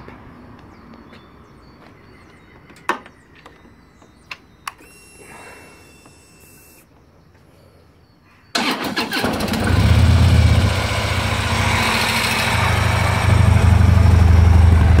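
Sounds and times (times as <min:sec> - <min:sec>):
motorcycle starter: 0:08.6 - 0:09.8.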